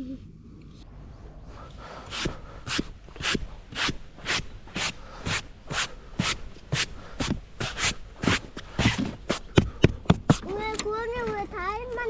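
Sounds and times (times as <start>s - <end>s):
gloved hand brushing frost: 2.0s - 9.6s.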